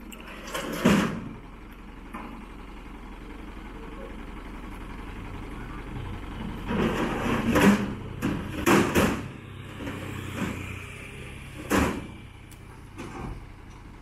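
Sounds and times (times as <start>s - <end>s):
truck engine idling: 0.0s - 14.0s
metal knocks and clanks: 6.6s - 10.6s.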